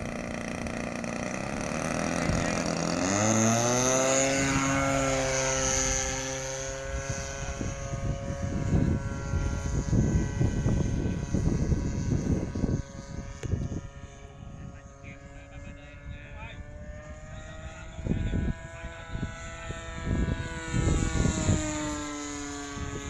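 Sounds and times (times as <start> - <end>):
model plane engine revving: 0.0 - 23.0.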